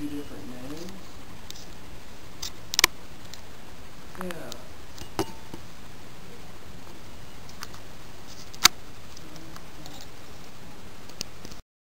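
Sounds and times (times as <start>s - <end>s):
ceiling fan airflow hiss: 0.0s - 11.6s
sharp clicks: 2.4s - 3.4s.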